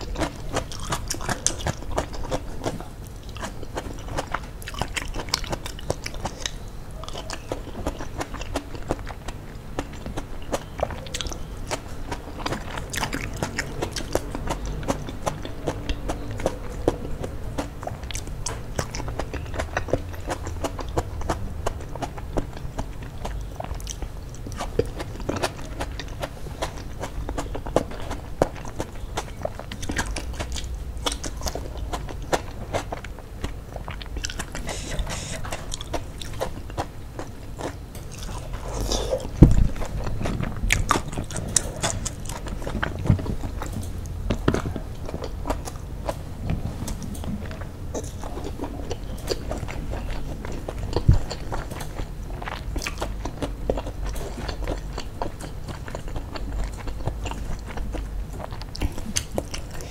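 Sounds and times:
mouth clicks: 0.0s - 36.9s
chewing and crunching food: 0.0s - 59.9s.

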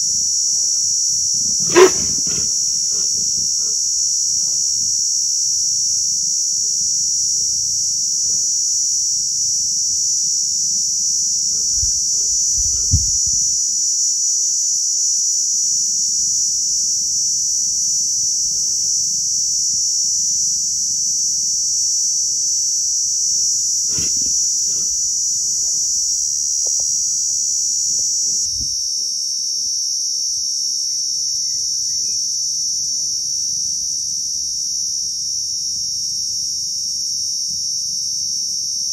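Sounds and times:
insects chorus: 0.0s - 38.9s
thump: 11.6s - 13.5s.

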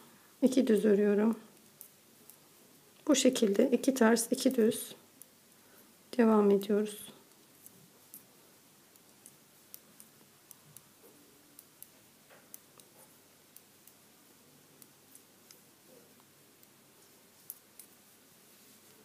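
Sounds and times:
knitting needles clicking: 0.8s - 2.4s, 8.9s - 14.1s, 14.7s - 16.8s, 17.4s - 18.0s.

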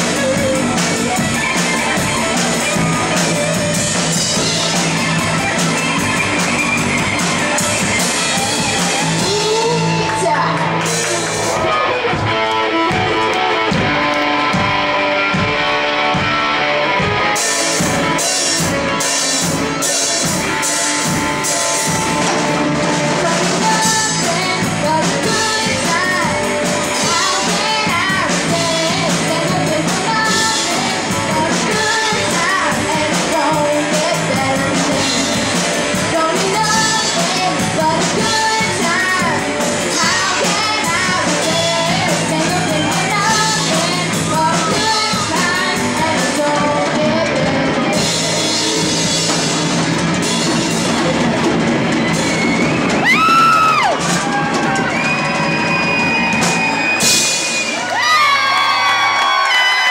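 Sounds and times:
drum kit with crashing cymbals: 0.0s - 10.1s, 17.0s - 58.0s
guitar: 0.0s - 59.9s
person singing: 8.0s - 12.0s, 17.2s - 49.3s.

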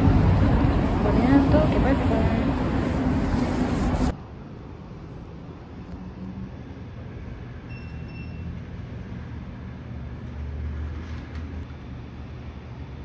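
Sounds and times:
vehicle low rumble: 0.0s - 13.0s
faint high beep: 7.7s - 8.5s.

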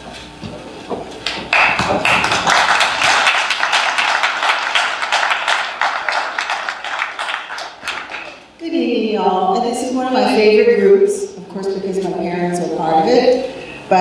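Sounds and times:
audience applauding: 1.2s - 8.5s.

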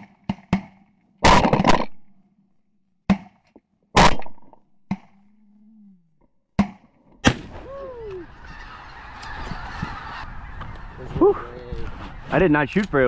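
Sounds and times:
shotgun shots: 6.6s - 7.6s
geese honking: 7.9s - 12.8s.

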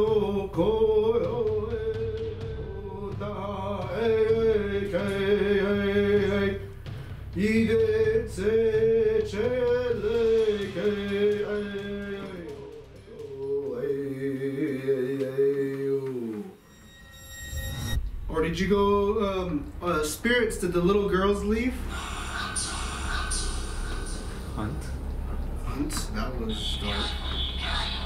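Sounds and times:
man singing long held notes: 7.3s - 16.6s.

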